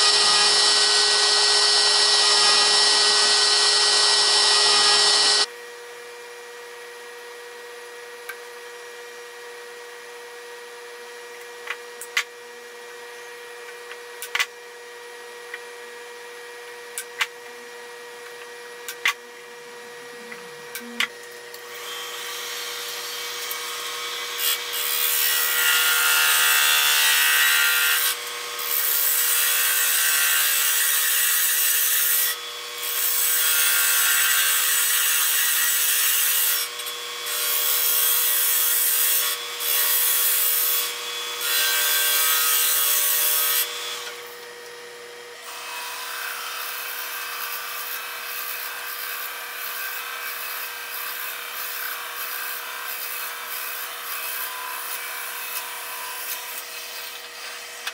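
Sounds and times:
drill bit scratching into wood: 0.0s - 5.5s
turning tool cutting wood: 0.0s - 5.5s, 19.8s - 44.8s, 45.4s - 57.9s
wood lathe humming: 0.0s - 5.5s.

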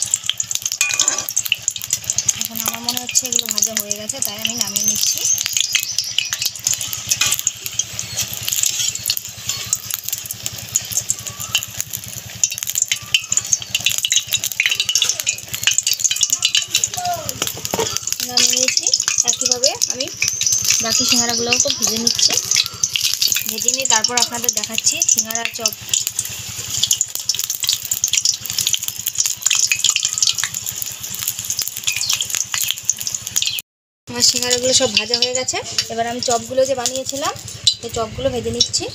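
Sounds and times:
food sizzling in hot oil: 0.0s - 38.9s
metal spoon scraping a pan: 0.7s - 11.1s, 11.7s - 28.8s, 34.3s - 37.9s.

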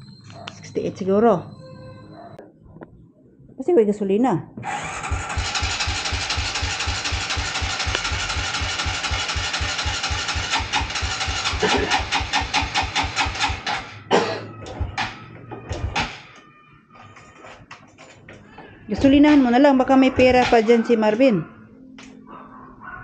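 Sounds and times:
motorcycle starter cranking: 4.6s - 16.4s.

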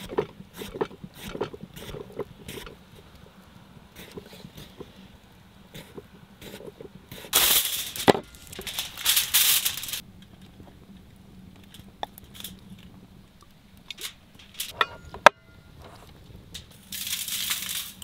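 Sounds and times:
aluminium foil crinkling: 7.3s - 10.5s, 11.6s - 12.9s, 13.8s - 14.8s, 15.8s - 18.0s.

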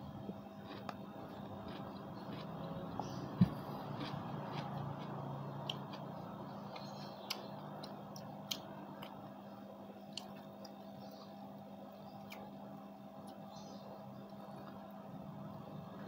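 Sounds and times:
steady low hum: 0.0s - 16.0s
wet chewing: 0.6s - 9.4s, 10.0s - 11.4s, 12.0s - 12.6s
mouth clicks and smacks: 6.7s - 9.2s.

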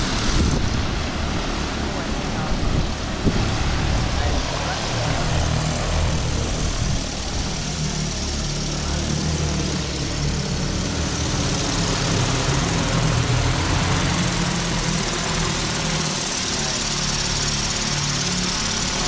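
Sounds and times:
drone rotors flying overhead: 0.0s - 19.0s.

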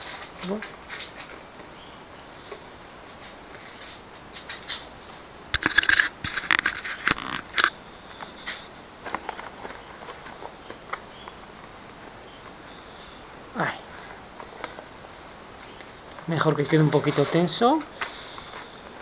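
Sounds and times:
paper crackling and scraping: 0.0s - 1.7s, 5.6s - 12.1s, 14.1s - 19.0s
light clicks and rubs: 5.6s - 11.0s.

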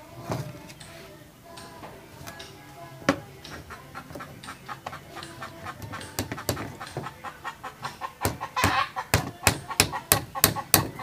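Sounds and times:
hammer tapping a nail: 8.2s - 11.0s.

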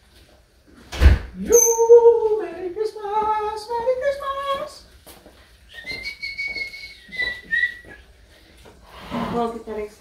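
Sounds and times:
person whistling short tune: 5.7s - 8.0s.

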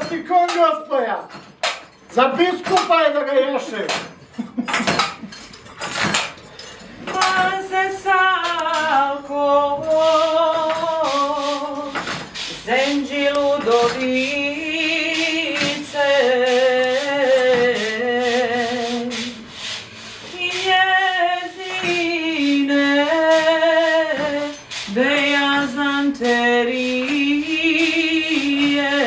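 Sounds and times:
woman singing with vibrato: 7.0s - 29.0s.

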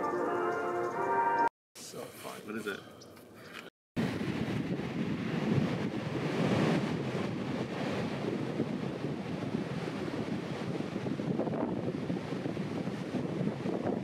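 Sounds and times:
ocean surf breaking: 4.0s - 14.0s
wind buffeting microphone: 4.0s - 14.0s.

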